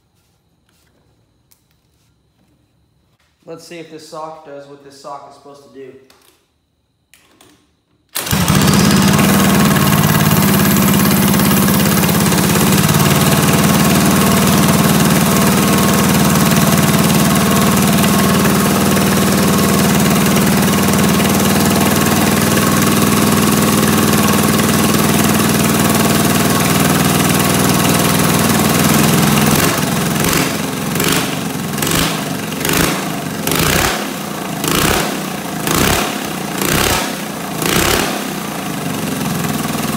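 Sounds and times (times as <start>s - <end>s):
kart engine running: 8.2s - 39.9s.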